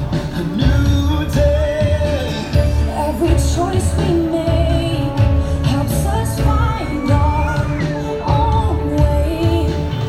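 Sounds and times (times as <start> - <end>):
pop song over loudspeakers: 0.0 - 10.0.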